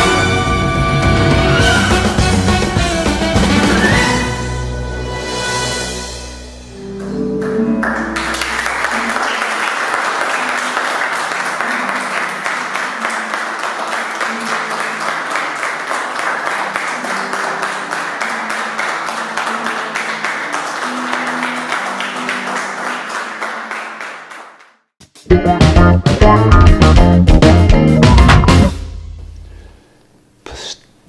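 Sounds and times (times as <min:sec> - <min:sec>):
quiet music: 0:00.0 - 0:09.6
audience clapping: 0:07.0 - 0:24.8.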